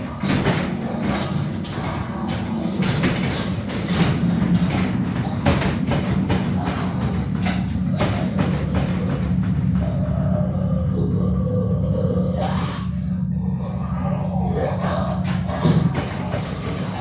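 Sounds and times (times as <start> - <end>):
wooden crate rocking and banging: 0.0 - 10.2
horror soundtrack drone: 0.0 - 17.0.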